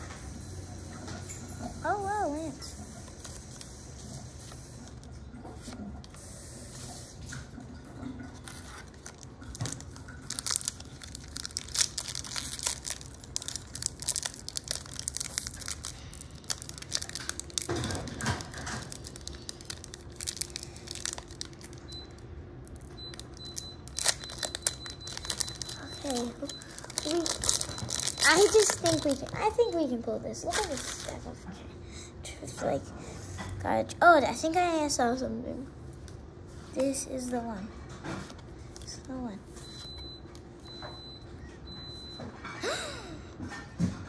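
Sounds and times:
foil wrappers crinkling and tearing: 8.4s - 31.4s.

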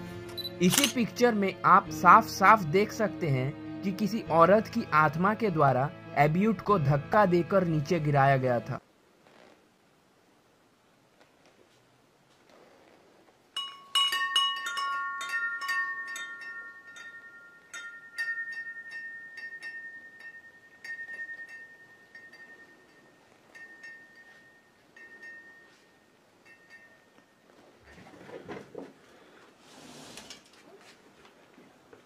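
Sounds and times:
wind chime clinking: 13.6s - 27.5s.

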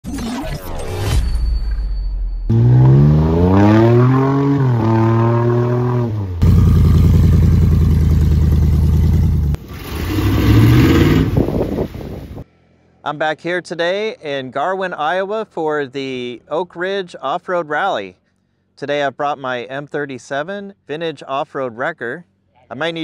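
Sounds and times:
off-road vehicle engine revving: 2.5s - 12.4s.

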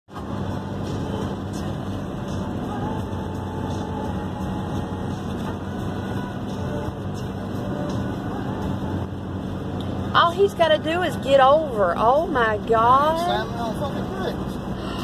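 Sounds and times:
road and engine noise in car: 0.0s - 15.0s.

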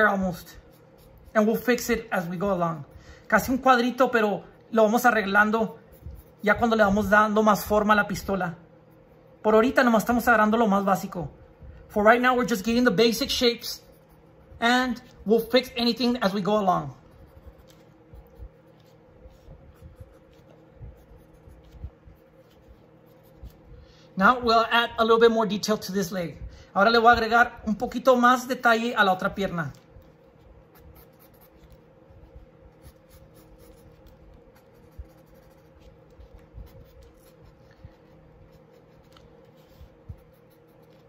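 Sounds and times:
pencil scratching on paper: 0.1s - 4.0s, 5.1s - 7.1s, 12.4s - 23.8s, 29.2s - 41.0s.

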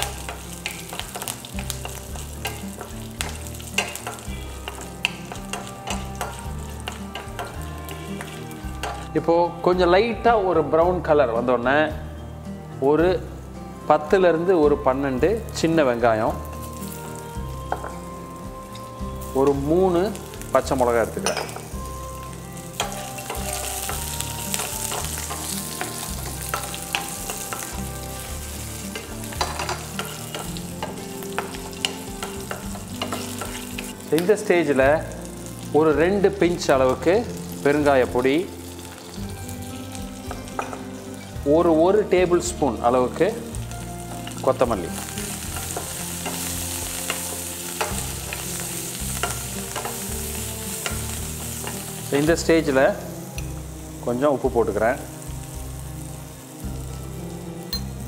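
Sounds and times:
food sizzling in oil: 0.0s - 10.4s, 11.3s - 58.0s
spatula tapping pan: 0.1s - 7.6s, 28.9s - 33.9s.

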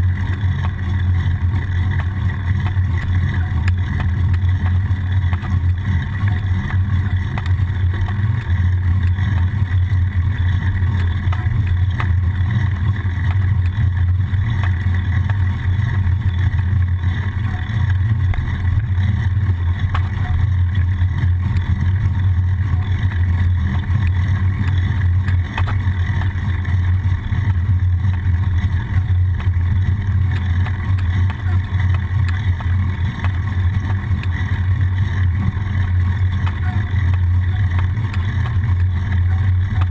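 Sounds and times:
wind and road rumble: 0.0s - 39.9s.

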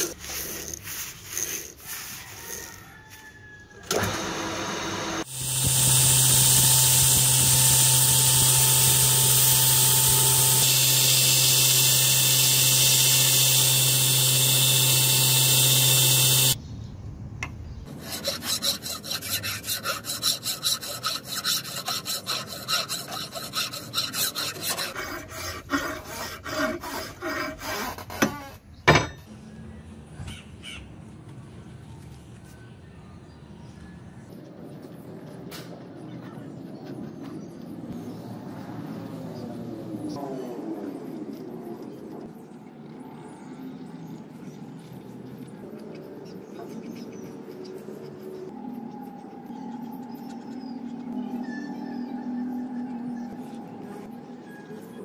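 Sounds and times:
power tool humming: 3.9s - 16.6s
hand tool rasping metal: 17.9s - 28.5s.

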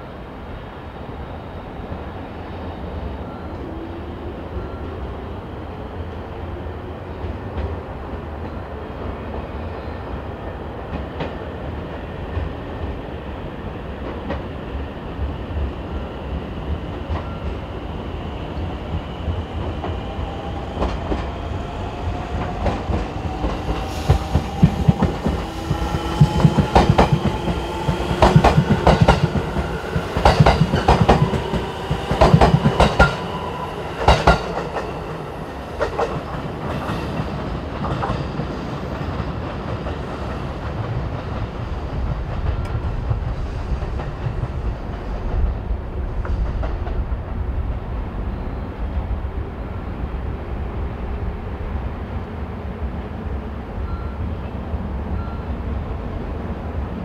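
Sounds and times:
train wheels clacking on rails: 18.6s - 45.6s.

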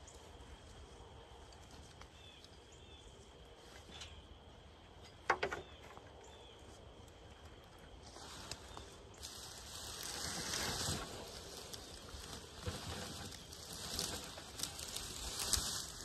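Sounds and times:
rattle of clicks and knocks: 5.0s - 6.0s.

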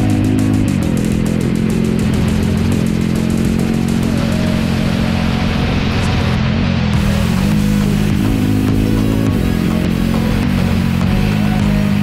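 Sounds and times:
background music: 0.0s - 12.0s
motorcycle engine running: 0.0s - 12.0s.

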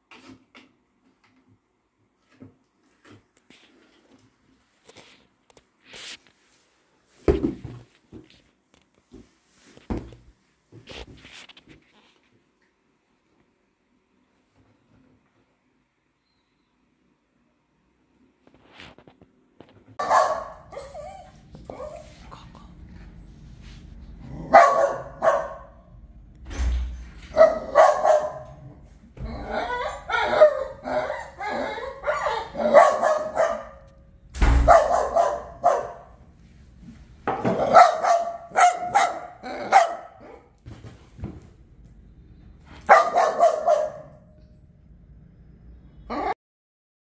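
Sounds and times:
dog barking: 20.0s - 22.1s, 24.4s - 25.9s, 27.3s - 28.7s, 29.4s - 34.0s, 34.6s - 36.2s, 37.4s - 40.5s, 42.8s - 44.4s.

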